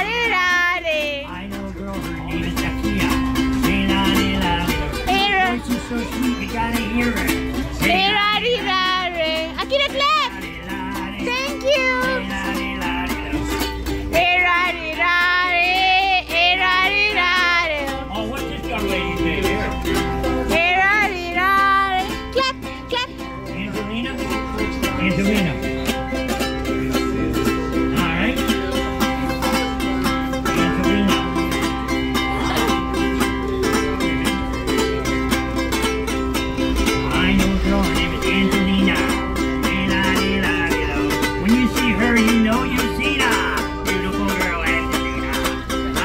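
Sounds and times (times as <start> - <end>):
ukulele strumming chords: 0.0 - 46.0.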